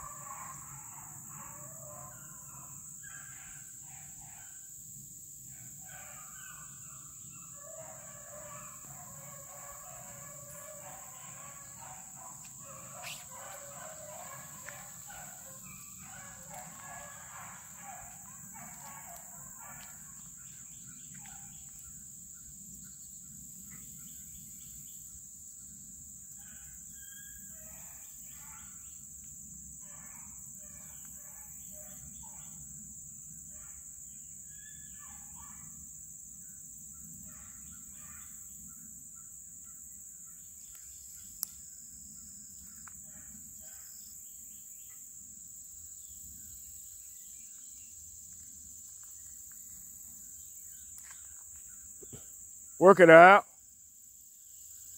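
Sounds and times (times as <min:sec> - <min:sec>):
insect chorus: 0:00.0 - 0:54.9
distant calls: 0:06.0 - 0:20.4.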